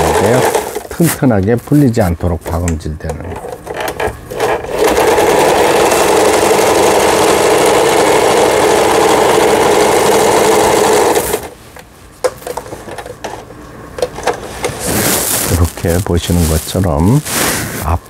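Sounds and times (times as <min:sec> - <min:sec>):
sewing machine running: 0:00.0 - 0:00.8, 0:03.9 - 0:11.5.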